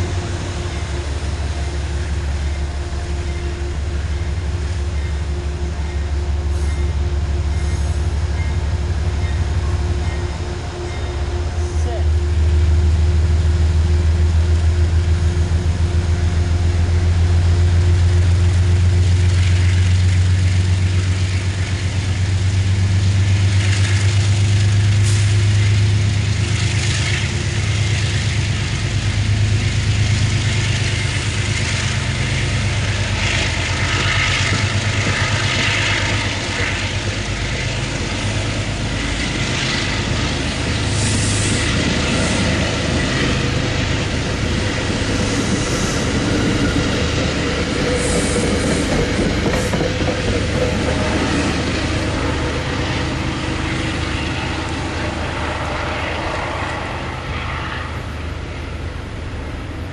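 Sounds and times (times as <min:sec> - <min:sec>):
diesel locomotive engine drone: 0:00.0 - 0:59.9
train wheels clattering on rails: 0:18.2 - 0:57.6.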